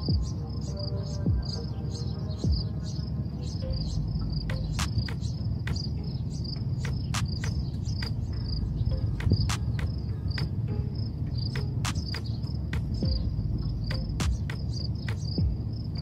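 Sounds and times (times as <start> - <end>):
cricket chirping: 0.0 - 16.0
low rumble: 3.6 - 16.0
sharp clicks: 4.5 - 5.9, 6.8 - 8.2, 11.6 - 13.0, 13.9 - 15.4.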